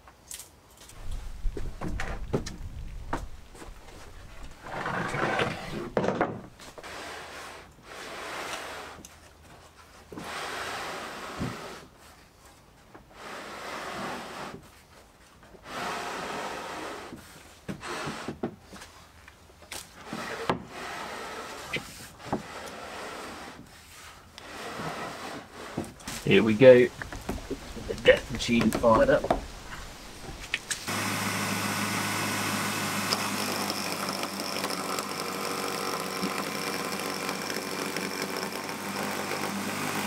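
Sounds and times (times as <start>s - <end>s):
wood scraping across wood: 0.8s - 19.1s, 20.0s - 31.0s, 33.0s - 40.0s
wood-on-wood knocks: 1.5s - 3.8s, 5.3s - 6.5s, 28.4s - 30.4s.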